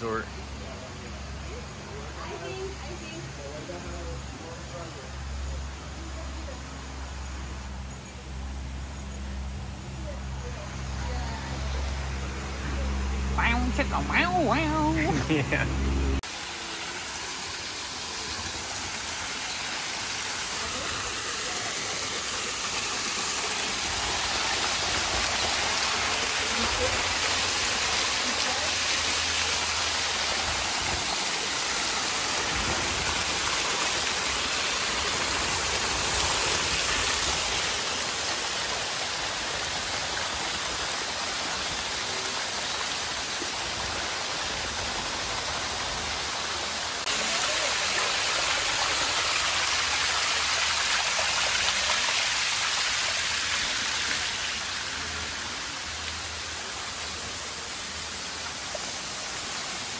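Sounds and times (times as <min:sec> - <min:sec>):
waterfall splashing into pool: 0:12.7 - 0:59.9.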